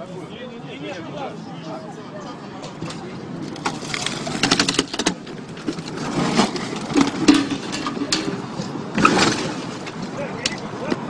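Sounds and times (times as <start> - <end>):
car body clattering and scraping: 2.6 - 11.0.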